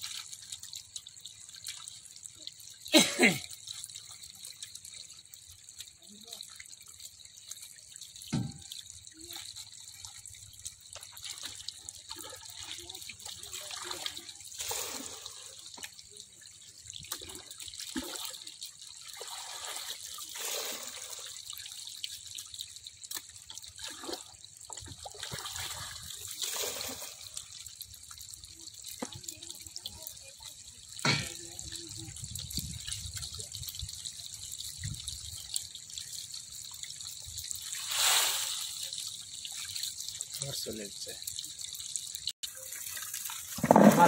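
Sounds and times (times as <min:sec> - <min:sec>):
water trickling and splashing: 0:00.0 - 0:44.0.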